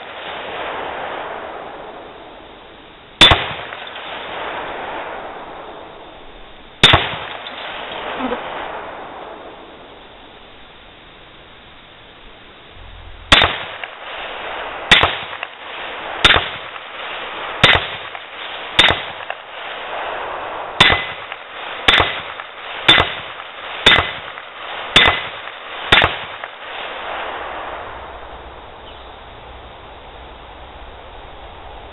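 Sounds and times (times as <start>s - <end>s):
rifle shots: 3.2s - 5.6s, 6.8s - 8.8s, 13.2s - 20.2s, 20.8s - 27.2s.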